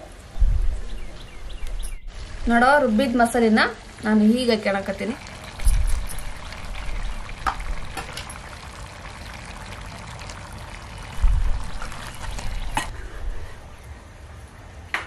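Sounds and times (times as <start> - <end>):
chicken sizzling in a pot: 2.1 - 12.9.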